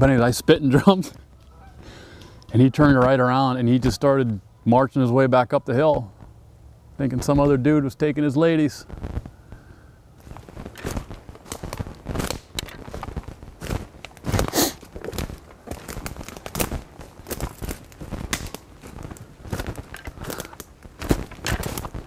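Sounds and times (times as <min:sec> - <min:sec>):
footsteps crunching leaves and sticks: 0:10.2 - 0:22.0.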